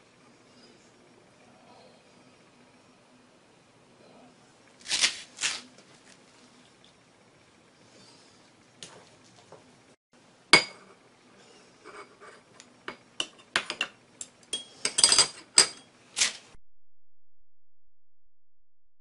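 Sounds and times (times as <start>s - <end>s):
chopsticks and spoon clinking dishes: 13.2s - 15.9s.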